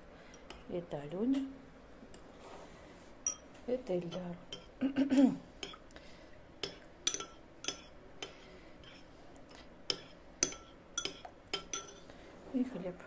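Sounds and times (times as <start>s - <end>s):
metal spoon clinking on ceramic bowl: 3.2s - 3.5s, 6.6s - 8.4s, 9.9s - 12.0s.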